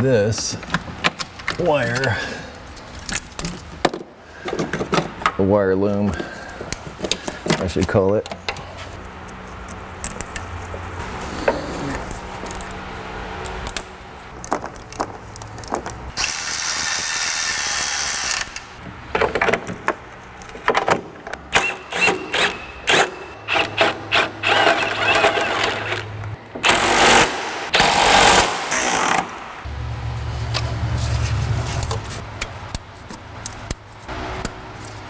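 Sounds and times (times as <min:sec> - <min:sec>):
power tool driving fasteners: 0:16.2 - 0:18.7, 0:21.5 - 0:29.5.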